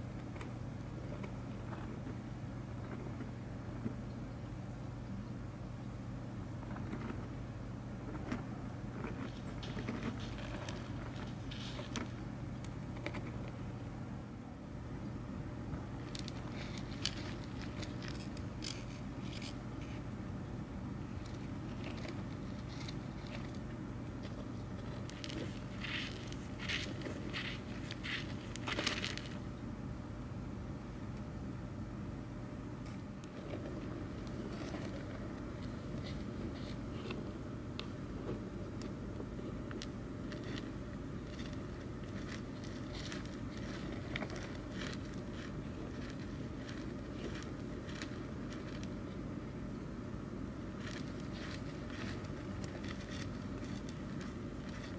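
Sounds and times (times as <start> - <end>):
steady low hum: 0.0 - 54.9
scratching and crackling of soil: 6.4 - 13.8, 15.6 - 29.6, 32.8 - 54.9.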